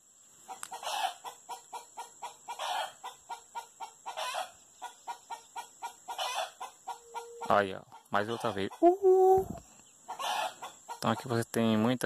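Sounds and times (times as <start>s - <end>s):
chickens clucking: 0.4s - 11.8s
chicken cackling: 0.5s - 11.3s.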